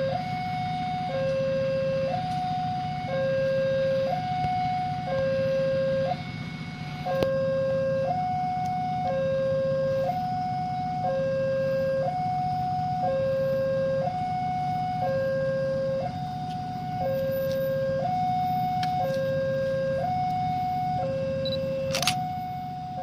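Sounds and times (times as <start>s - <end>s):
two-tone crossing alarm: 0.0s - 23.0s.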